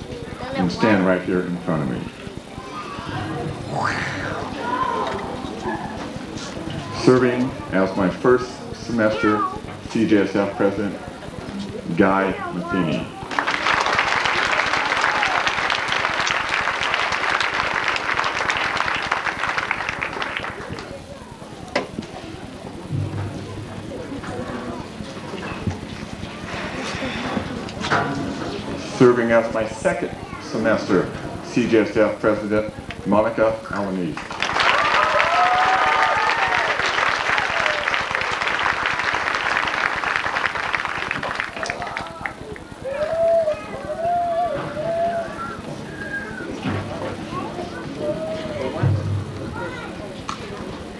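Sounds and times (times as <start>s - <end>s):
voices raised over clapping: 10.5s - 22.9s, 33.8s - 48.8s
crowd applauding: 13.1s - 21.2s, 34.2s - 45.4s.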